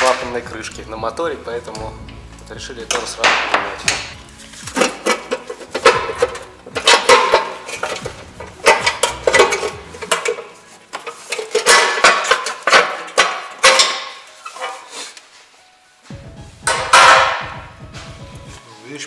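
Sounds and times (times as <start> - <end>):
metal wrenches and parts clattering: 0.0 - 0.9, 2.6 - 15.1, 16.7 - 17.6.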